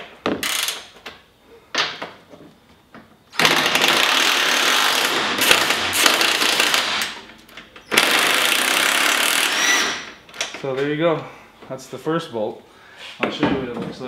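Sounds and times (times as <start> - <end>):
power drill running: 3.4 - 7.1, 7.9 - 10.1.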